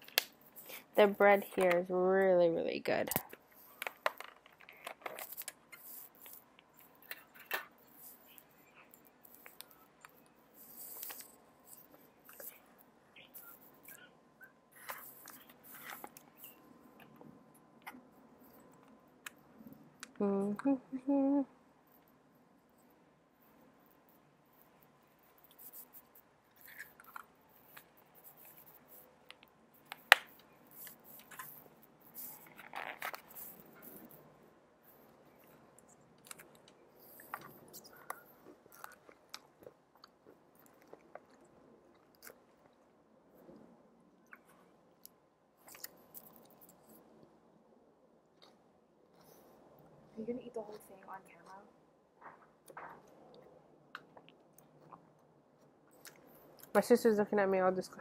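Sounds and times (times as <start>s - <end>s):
soft chewing: 3.2s - 20.7s, 21.7s - 56.8s
person chewing food: 35.0s - 42.9s, 44.3s - 46.9s, 52.6s - 56.7s.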